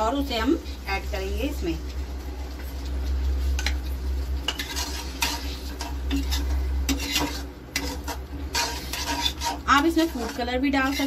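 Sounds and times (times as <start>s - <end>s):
steady low hum: 0.0s - 11.0s
spatula scraping metal pan: 4.4s - 11.0s.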